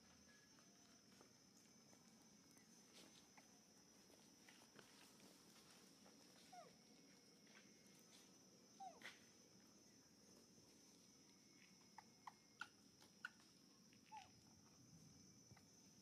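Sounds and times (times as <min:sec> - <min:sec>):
infant monkey squeaking: 0:14.1 - 0:14.3.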